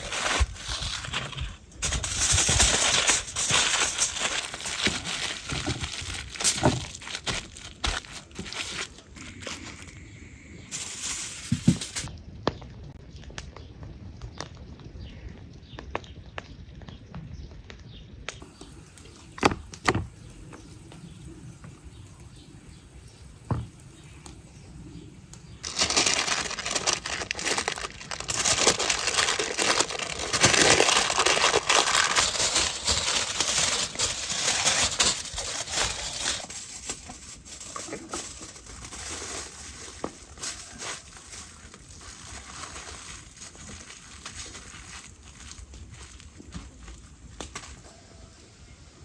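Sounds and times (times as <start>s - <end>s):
foil and paper crumpling: 0.0s - 12.1s, 25.6s - 47.8s
fire popping: 0.0s - 48.0s
wood fire crackling: 0.0s - 48.0s.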